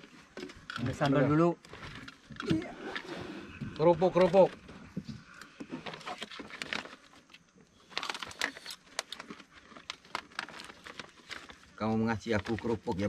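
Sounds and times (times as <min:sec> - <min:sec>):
plastic bag crinkling: 0:05.6 - 0:13.0.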